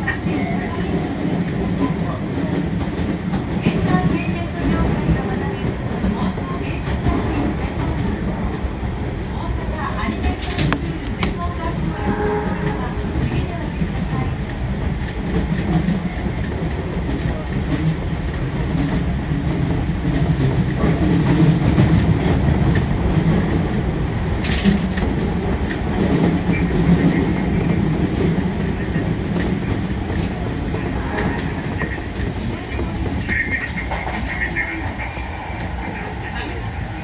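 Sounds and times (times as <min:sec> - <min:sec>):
train wheels rumbling on rails: 0:00.0 - 0:37.0.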